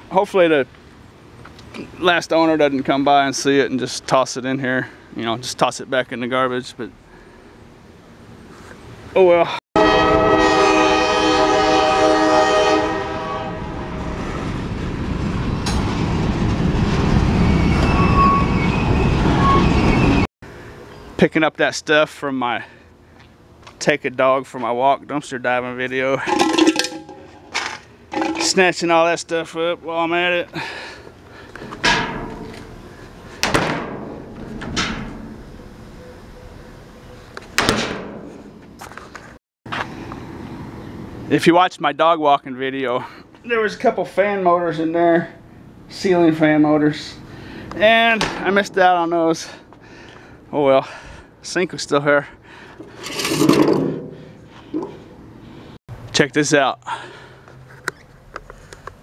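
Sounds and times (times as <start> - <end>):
freight train horn: 9.8 - 14.0
train cars rumbling past: 9.8 - 20.3
wheel squeal: 17.3 - 20.3.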